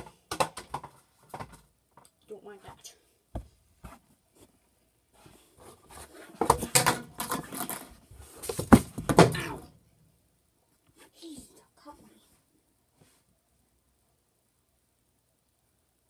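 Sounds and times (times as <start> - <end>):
rustling and clattering objects: 0.0 - 2.2, 3.4 - 9.5.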